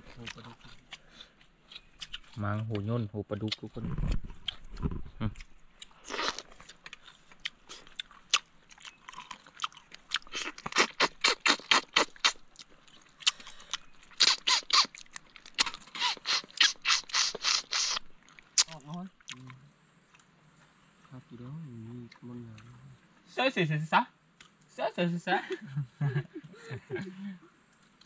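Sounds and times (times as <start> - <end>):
chewing crunchy fish: 0.0 - 20.3.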